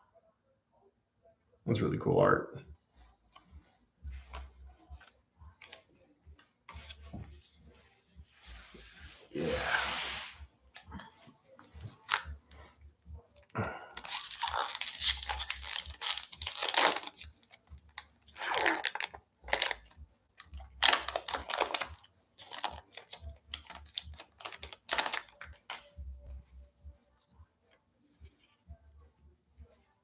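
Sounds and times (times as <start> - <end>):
foil wrapper crinkling and tearing: 12.0 - 12.3, 14.0 - 25.9.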